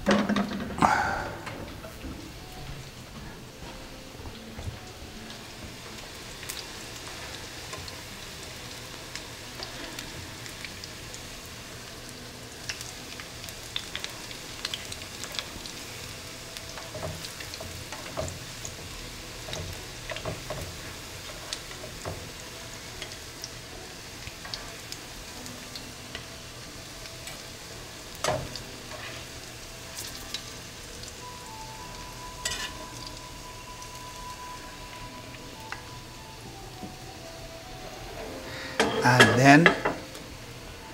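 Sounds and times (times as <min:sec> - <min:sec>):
utensil clanking on pan: 0:00.0 - 0:02.0, 0:38.8 - 0:40.1
patties sizzling in oil: 0:00.0 - 0:40.9.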